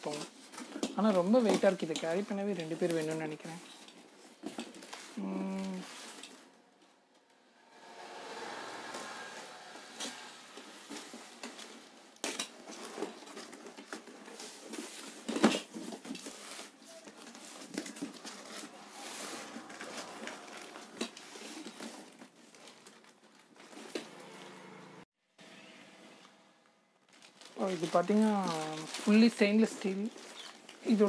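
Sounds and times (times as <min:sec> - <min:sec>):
cardboard box crinkling and rustling: 0:12.2 - 0:23.9, 0:27.1 - 0:31.0.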